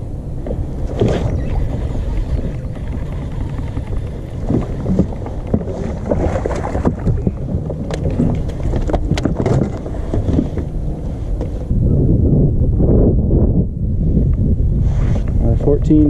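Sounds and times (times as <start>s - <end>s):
wind buffeting microphone: 0.0s - 16.0s
water moving around kayak: 0.1s - 11.8s.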